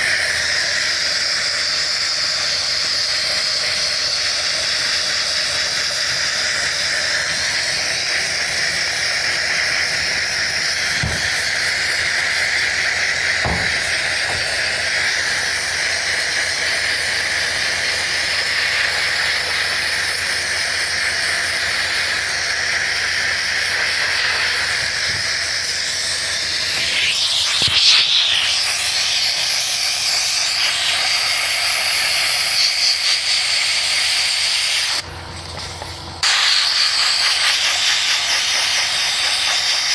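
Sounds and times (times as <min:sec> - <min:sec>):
sandblast gun hissing: 0:00.0 - 0:39.9.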